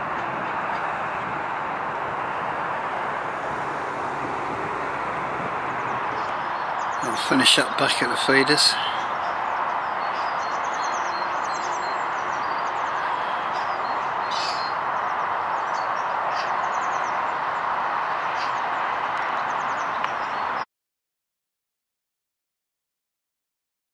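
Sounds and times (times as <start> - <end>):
small birds chirping: 5.6 - 20.6.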